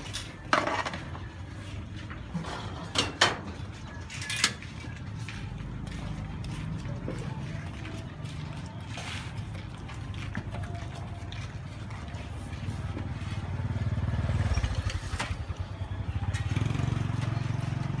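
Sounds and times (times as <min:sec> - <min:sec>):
small engine rumble: 0:10.5 - 0:18.0.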